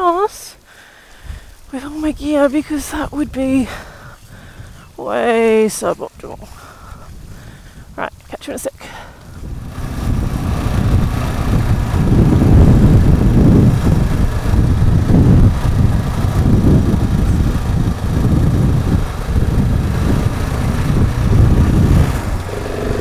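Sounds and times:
motorcycle engine rumble: 9.2s - 23.0s.

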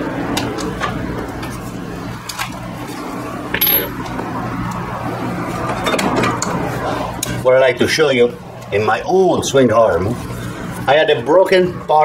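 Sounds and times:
metal parts clicking: 3.6s - 4.0s
ringing metal clink: 3.6s - 4.0s.

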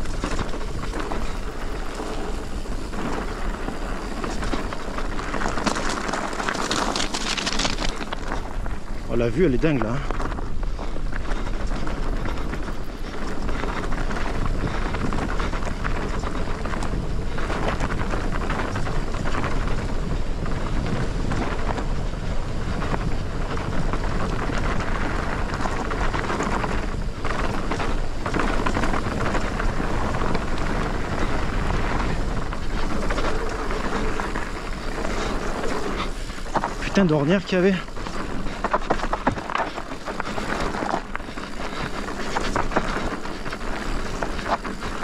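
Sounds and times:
bike knocks and rattles: 0.0s - 9.0s
bike tyres on dirt and stones: 0.0s - 45.0s
wind noise on microphone: 0.0s - 45.0s.

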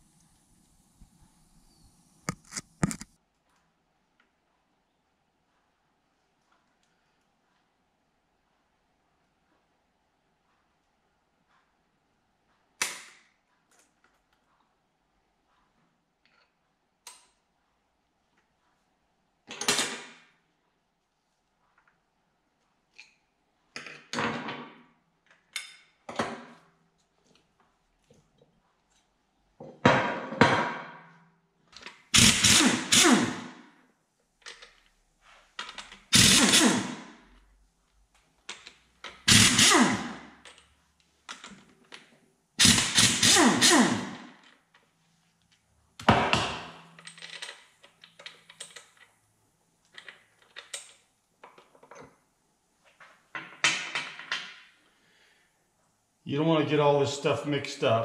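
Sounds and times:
pneumatic impact wrench hammering: 32.1s - 33.6s, 36.0s - 37.2s, 39.2s - 40.4s, 42.6s - 44.4s.

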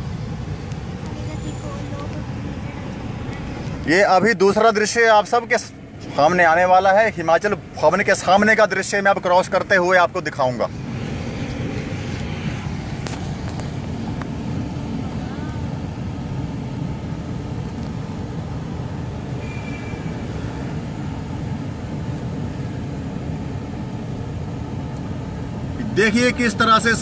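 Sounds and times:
car interior road noise: 0.0s - 27.0s.

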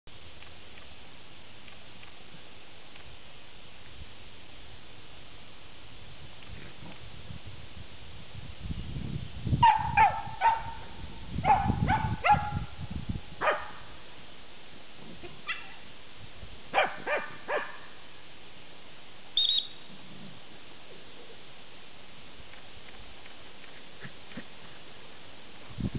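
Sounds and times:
dogs yapping: 16.8s - 17.8s.

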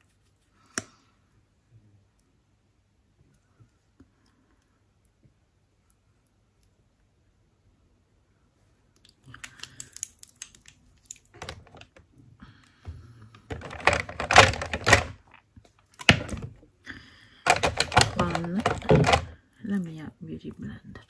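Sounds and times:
makeup containers clicking and knocking: 11.4s - 12.1s, 13.4s - 15.4s, 16.0s - 16.6s, 17.5s - 19.4s.

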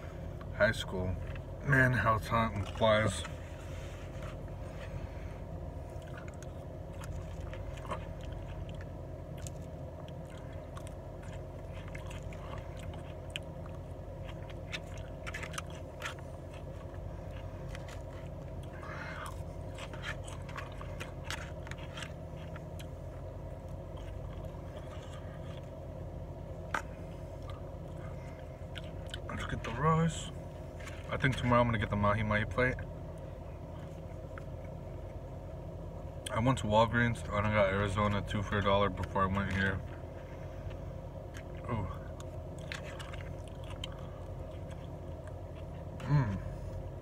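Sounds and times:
low car cabin hum: 0.0s - 47.0s
chewing: 5.8s - 29.7s, 38.0s - 46.8s.

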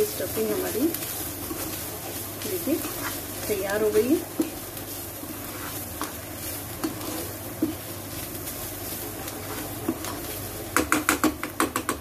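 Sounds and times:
low sizzle: 0.0s - 12.0s
metal spatula scraping frying pan: 2.5s - 4.6s, 5.2s - 7.8s.

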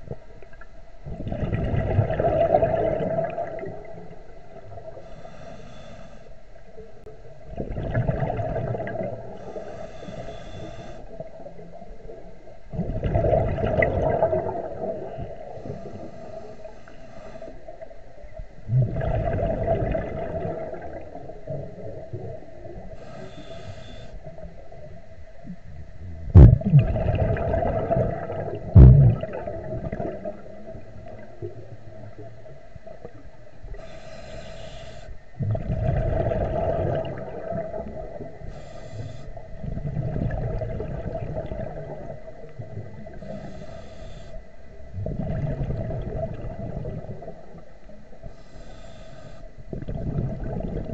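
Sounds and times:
exhaust bubbles underwater: 0.0s - 5.1s, 6.6s - 9.8s, 10.6s - 16.5s, 17.6s - 23.4s, 24.2s - 33.8s, 35.3s - 38.6s, 39.3s - 43.6s, 44.6s - 48.4s, 49.6s - 50.9s
diver breathing through regulator: 4.9s - 6.6s, 9.2s - 11.4s, 15.1s - 18.0s, 22.8s - 24.5s, 33.7s - 35.3s, 38.2s - 39.5s, 43.0s - 44.8s, 48.2s - 49.7s.

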